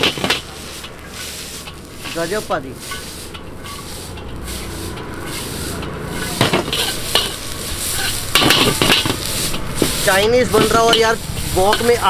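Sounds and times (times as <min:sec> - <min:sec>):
spatula scraping a wok: 0:00.0 - 0:12.0
vegetables sizzling in a wok: 0:00.0 - 0:12.0
spatula clanking against wok: 0:02.8 - 0:10.0.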